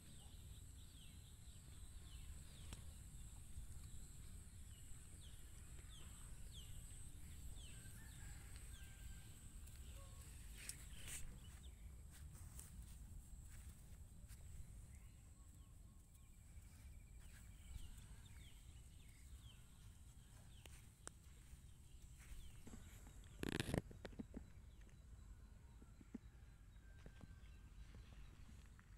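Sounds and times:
faint bird chirps: 0:00.0 - 0:12.8.

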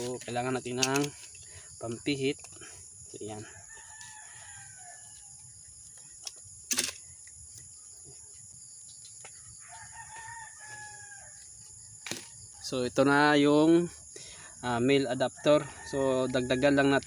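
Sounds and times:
rooster crowing: 0:03.4 - 0:05.6, 0:09.5 - 0:11.6, 0:15.3 - 0:17.0.

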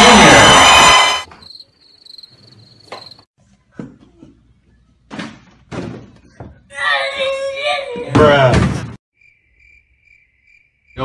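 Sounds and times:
cricket chirping: 0:01.2 - 0:03.3, 0:09.2 - 0:11.0.

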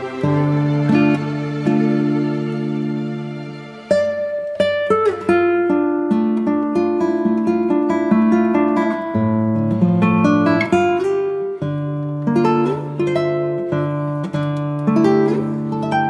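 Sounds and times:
acoustic guitar melody: 0:00.0 - 0:16.0.

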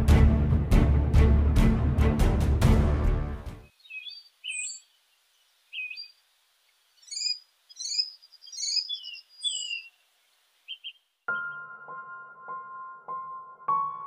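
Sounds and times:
small birds chirping: 0:03.6 - 0:11.6.

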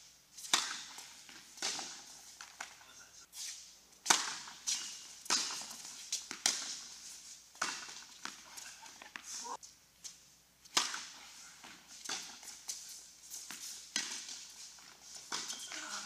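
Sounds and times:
ball bouncing on hard court: 0:00.4 - 0:02.8, 0:04.0 - 0:06.8, 0:07.6 - 0:09.3, 0:10.7 - 0:12.8, 0:13.4 - 0:16.0
rackets hitting tennis ball: 0:00.4 - 0:02.9, 0:04.0 - 0:16.0.

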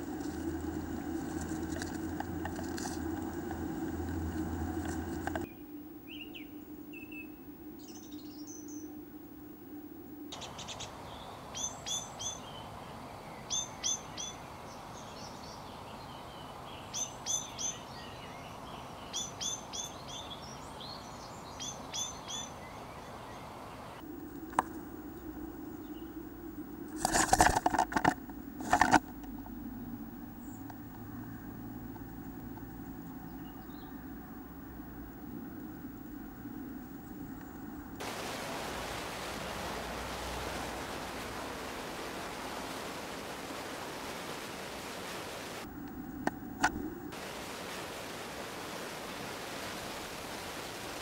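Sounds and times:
songbird calling: 0:00.0 - 0:09.1, 0:10.3 - 0:26.6, 0:29.3 - 0:34.3
low hum: 0:00.0 - 0:10.4, 0:24.0 - 0:51.0.

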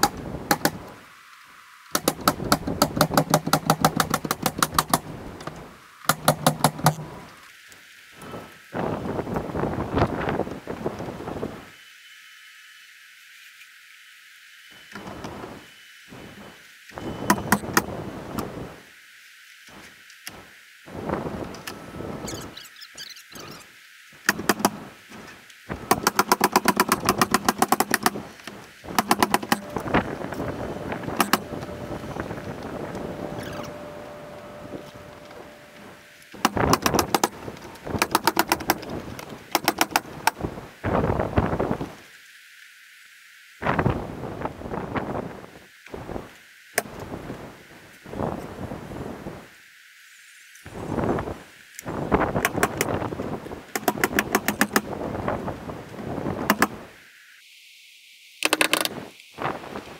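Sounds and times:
pneumatic nailer shots: 0:00.0 - 0:00.8, 0:01.9 - 0:05.1, 0:06.1 - 0:07.1, 0:17.2 - 0:17.9, 0:24.2 - 0:24.9, 0:25.9 - 0:28.2, 0:28.9 - 0:29.8, 0:31.1 - 0:31.5, 0:36.4 - 0:37.4, 0:38.0 - 0:38.9, 0:39.5 - 0:40.4, 0:53.8 - 0:54.9
sharp knocks: 0:24.2 - 0:24.8
loud rush of noise: 0:26.9 - 0:42.0.

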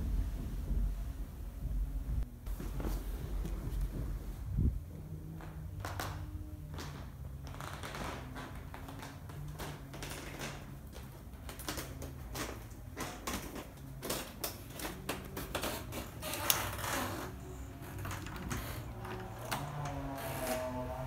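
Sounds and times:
footsteps: 0:00.0 - 0:06.1
low steady hum: 0:00.0 - 0:07.6.

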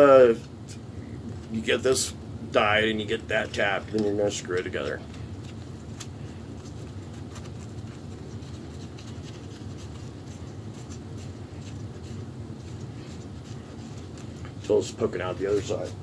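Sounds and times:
steady low hum: 0:00.0 - 0:16.0
pipe fittings threads scratching: 0:03.3 - 0:16.0.

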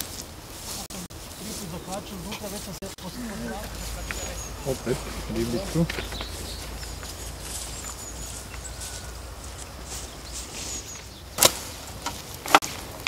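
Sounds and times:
faint bird chirps: 0:03.0 - 0:11.4.

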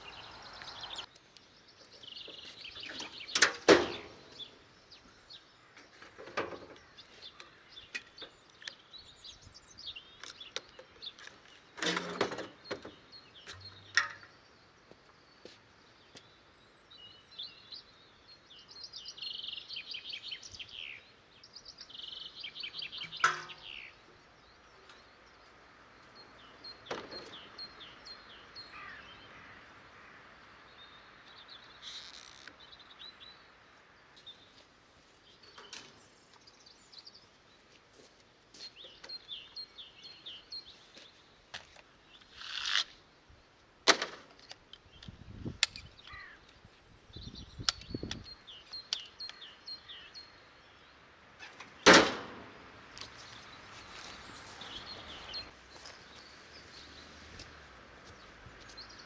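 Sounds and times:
small birds chirping: 0:00.0 - 0:43.8, 0:44.4 - 0:52.0, 0:52.8 - 0:59.0
sharp knocks and clunks: 0:02.8 - 0:04.2, 0:11.8 - 0:14.4, 0:23.0 - 0:23.7, 0:26.8 - 0:27.4, 0:43.8 - 0:44.5, 0:51.5 - 0:52.6.

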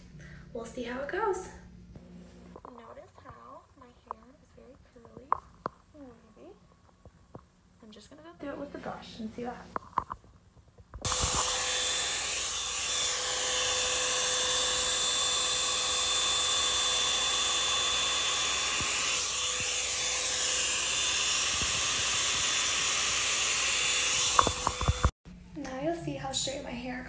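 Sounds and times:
hair dryer blowing air: 0:11.0 - 0:25.2.

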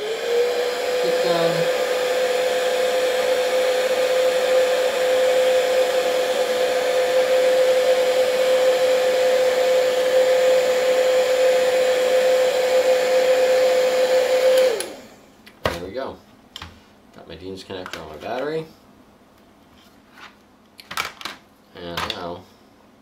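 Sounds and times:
heat gun fan whining: 0:00.0 - 0:15.6.

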